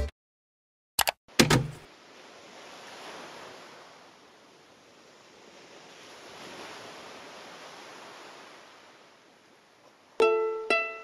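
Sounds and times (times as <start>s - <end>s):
ukulele background music: 10.2s - 11.0s.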